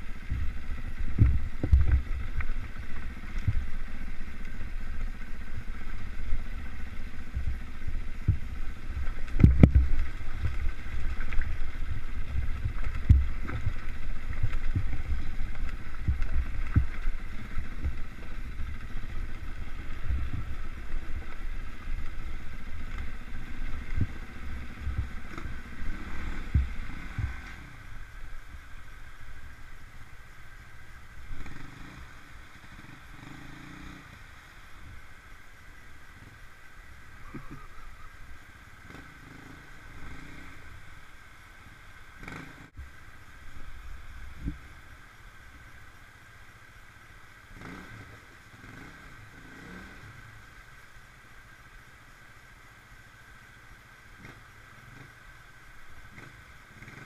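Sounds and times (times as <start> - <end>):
trail bike engine running: 0.0 - 57.0
wheels thumping on rocks: 0.3 - 3.9, 8.2 - 27.6.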